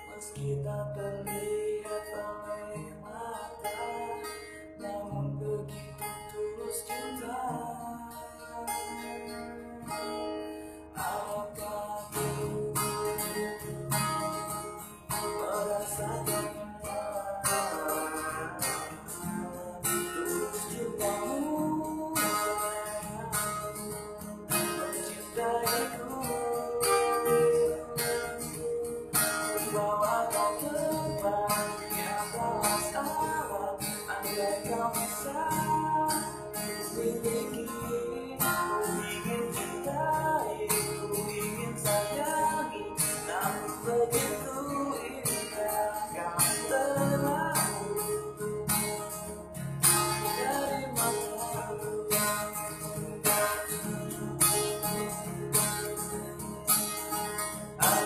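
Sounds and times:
man singing: 0.0s - 48.8s, 49.9s - 54.6s, 57.8s - 58.0s
strummed acoustic guitar: 0.0s - 58.0s.

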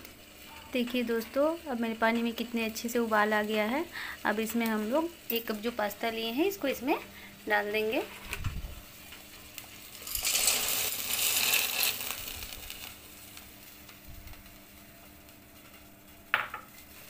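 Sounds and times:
pasta rattling into boiling water: 9.7s - 13.0s.

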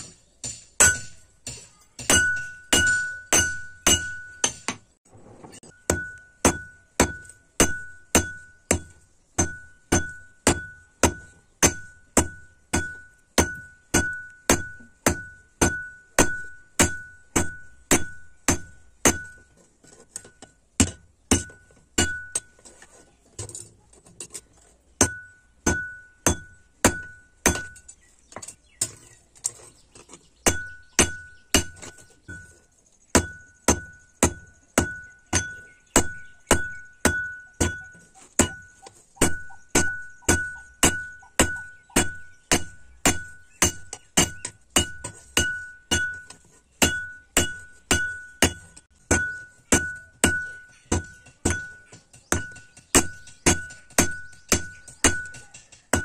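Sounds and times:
hammer blows ringing on anvil: 0.4s - 4.8s.

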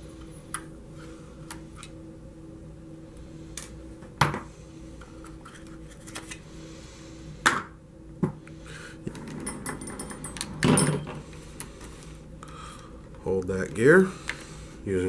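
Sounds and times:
faint steady hum: 0.0s - 15.0s
knocks and clatters of tools: 9.1s - 11.2s.

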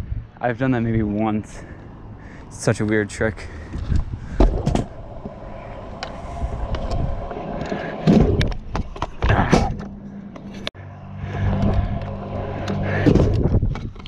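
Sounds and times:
scooter wheels rolling on concrete: 2.6s - 10.7s.

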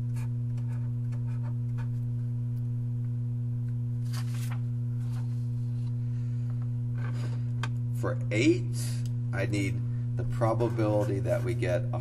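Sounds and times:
electrical hum: 0.0s - 12.0s
paper sheet rustling: 4.0s - 5.4s.

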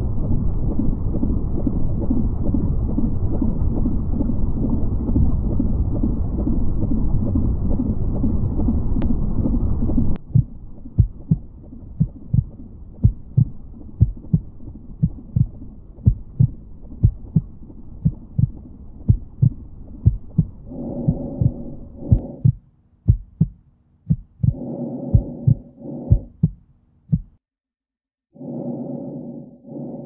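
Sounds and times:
low humming drone: 0.0s - 22.6s, 24.4s - 26.5s, 28.4s - 30.0s
low rumbling noise: 0.0s - 27.4s, 28.3s - 30.0s
heartbeat thumps: 10.2s - 27.4s.

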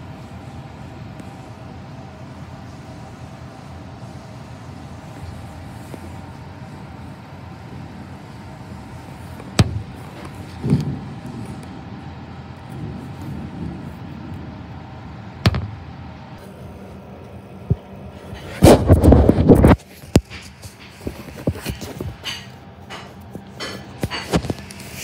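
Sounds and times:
steady rain: 10.5s - 15.4s
low rolling thunder rumble: 10.6s - 16.4s
sharp thunder crack: 15.4s - 16.1s.

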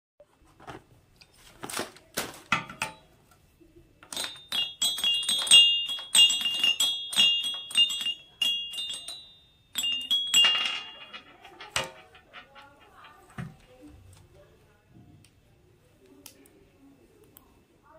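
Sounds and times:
toy xylophone notes: 4.1s - 12.1s.

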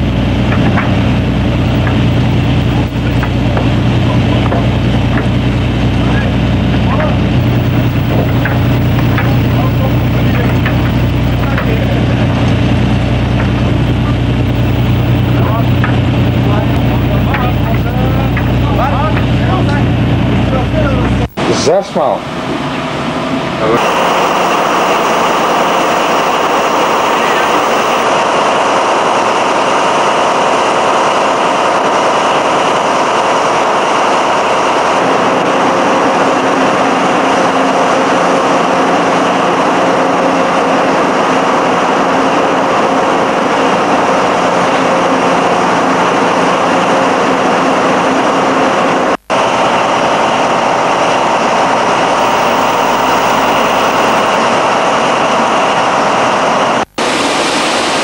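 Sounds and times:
engine room machinery roar: 0.0s - 21.5s, 22.2s - 37.2s, 49.2s - 54.6s.

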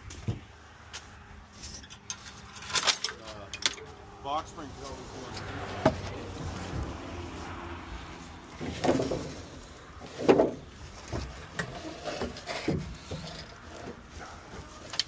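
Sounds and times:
wooden thuds and knocks: 10.0s - 13.2s.

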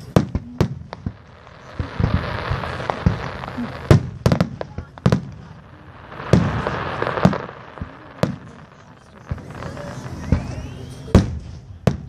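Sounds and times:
firework hiss: 0.0s - 11.9s
firework booms: 0.0s - 12.0s
rising firework whistle: 5.8s - 11.8s.

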